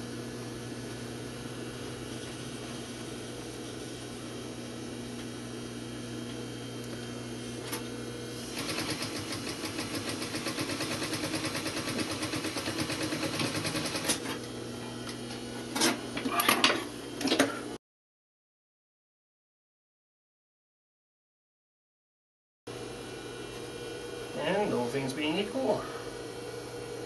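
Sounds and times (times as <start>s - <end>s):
sewing machine stitching: 8.5s - 14.2s
steady hum: 22.7s - 27.0s.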